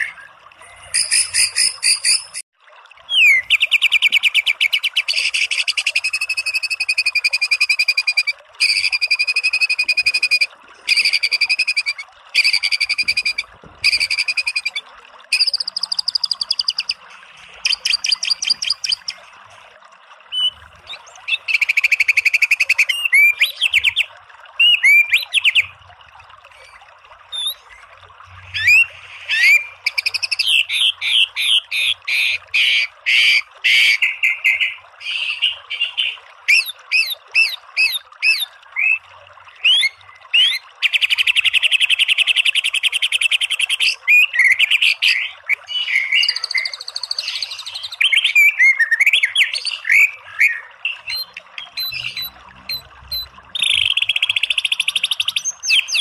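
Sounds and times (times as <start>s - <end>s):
bird singing whistled notes: 5.7s - 17.0s, 45.7s - 56.0s.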